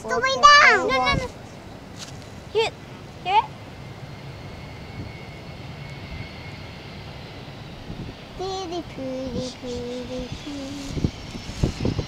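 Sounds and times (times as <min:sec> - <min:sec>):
distant jet engines rumbling: 0:00.0 - 0:12.0
faint high jet whine: 0:00.0 - 0:12.0
child singing: 0:08.4 - 0:11.0.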